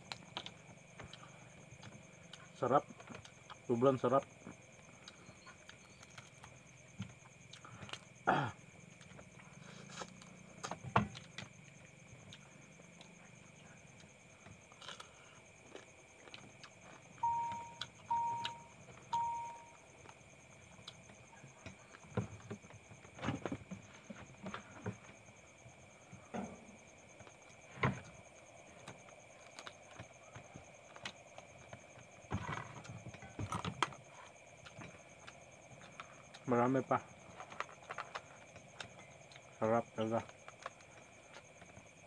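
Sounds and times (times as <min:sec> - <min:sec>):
chewing: 0:00.0 - 0:03.7, 0:04.5 - 0:08.2, 0:08.9 - 0:19.1, 0:27.2 - 0:36.5, 0:37.1 - 0:39.6, 0:40.2 - 0:42.0
short beeps: 0:17.2 - 0:19.8.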